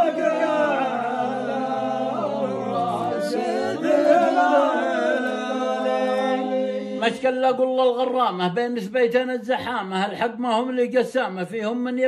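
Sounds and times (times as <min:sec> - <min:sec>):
man chanting: 0:06.1 - 0:12.0.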